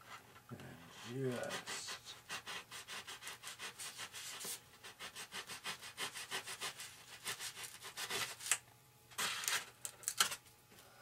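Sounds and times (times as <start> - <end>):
hobby knife sawing through foam: 1.1 - 8.4.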